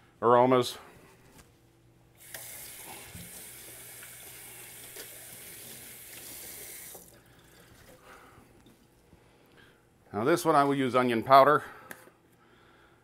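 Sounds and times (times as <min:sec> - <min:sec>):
faucet running into sink: 0:02.2 - 0:08.0.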